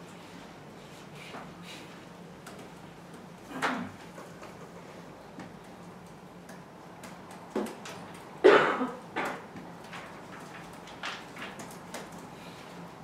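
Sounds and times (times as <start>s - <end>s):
person coughing: 8.4s - 9.0s.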